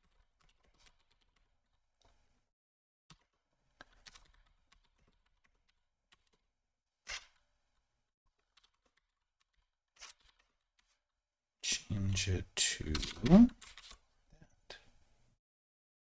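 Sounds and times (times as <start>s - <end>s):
faint typing on keyboard: 0.0s - 2.2s, 3.1s - 6.5s, 8.3s - 11.1s, 12.8s - 14.9s.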